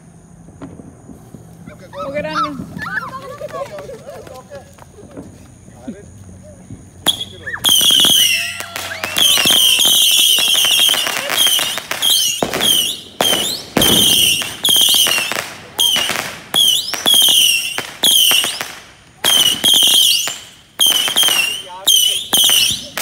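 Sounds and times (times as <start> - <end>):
firework pops: 0.4 - 1.7, 2.5 - 5.6, 6.7 - 23.0
warbling firework whistles: 6.5 - 23.0.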